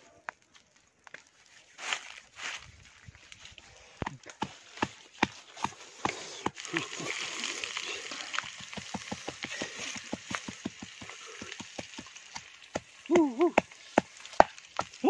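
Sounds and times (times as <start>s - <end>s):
pestle pounding in clay mortar: 8.4s - 15.0s.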